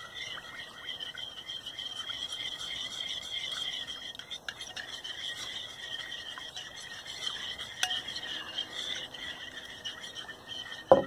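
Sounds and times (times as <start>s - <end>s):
high-pitched animal chorus: 0.0s - 10.9s
spoon stirring thick slime: 0.0s - 11.0s.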